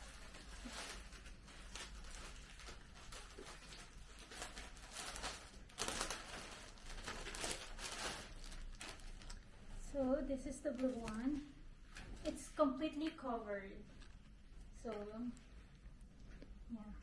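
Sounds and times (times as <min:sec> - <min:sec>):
plastic bag crinkling: 0:00.0 - 0:09.8, 0:10.6 - 0:12.4, 0:13.8 - 0:15.7.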